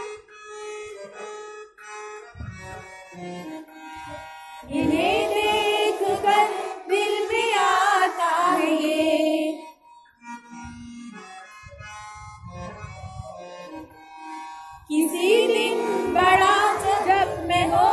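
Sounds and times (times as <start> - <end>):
person singing wavering melody: 4.7 - 9.8, 14.9 - 17.9.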